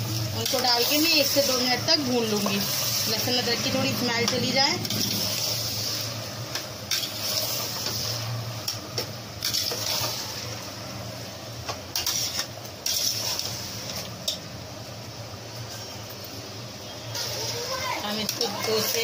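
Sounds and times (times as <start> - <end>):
meat sizzling in oil: 0.0 - 19.0
steel spoon scraping a pot: 9.4 - 10.3, 12.0 - 13.6.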